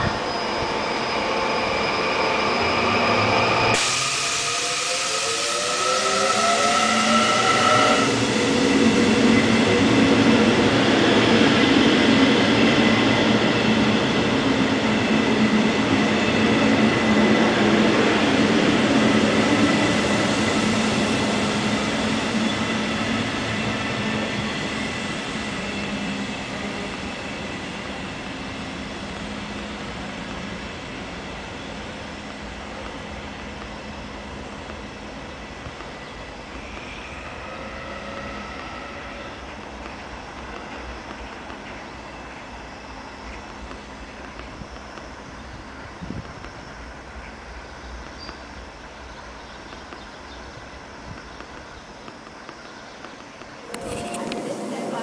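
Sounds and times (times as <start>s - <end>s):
train wheels on rails: 0.0s - 55.0s
train motor hum and whine: 31.4s - 41.7s.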